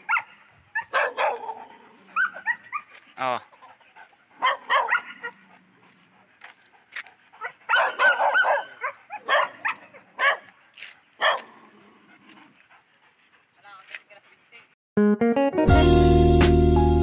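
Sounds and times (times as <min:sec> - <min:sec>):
dog barking: 0:00.0 - 0:02.9, 0:04.4 - 0:05.5, 0:07.4 - 0:10.5, 0:11.2 - 0:11.6.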